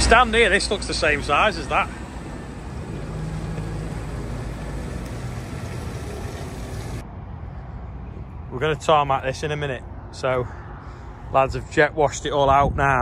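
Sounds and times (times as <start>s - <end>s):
tractor engine running: 0.0s - 7.0s
wind rumbling on microphone: 11.2s - 13.0s.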